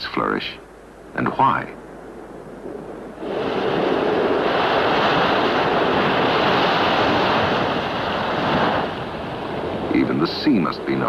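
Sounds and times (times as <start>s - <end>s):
ocean waves rushing: 2.4s - 11.0s.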